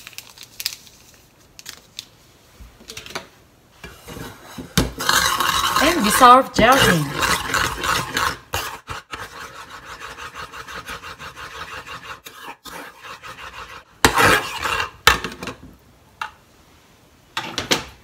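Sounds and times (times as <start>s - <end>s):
metal spoon scraping saucepan: 3.8s - 15.0s.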